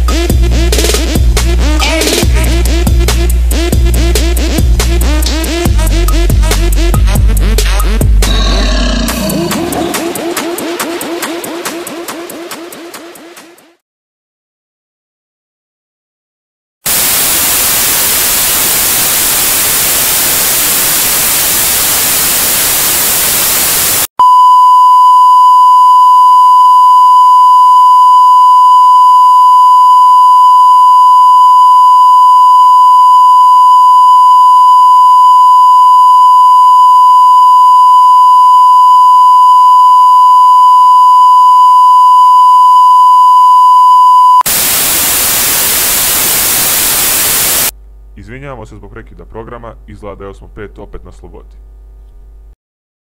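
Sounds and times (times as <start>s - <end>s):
television static hiss: 16.9s - 24.1s, 44.5s - 47.7s
steady test tone beep: 24.2s - 44.4s.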